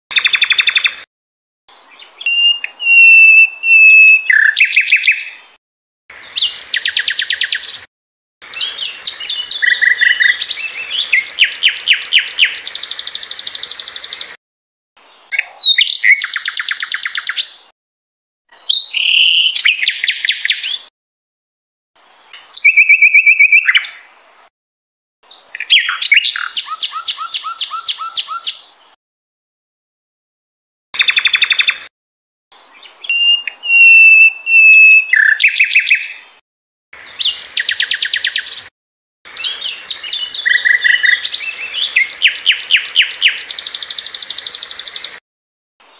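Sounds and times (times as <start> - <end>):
songbird singing trills and whistles: 0.1 - 1.1, 1.7 - 5.6, 6.2 - 14.3, 15.3 - 17.7, 18.5 - 20.9, 22.3 - 24.1, 25.4 - 28.7, 31.0 - 31.9, 32.6 - 36.4, 37.0 - 38.7, 39.3 - 45.2.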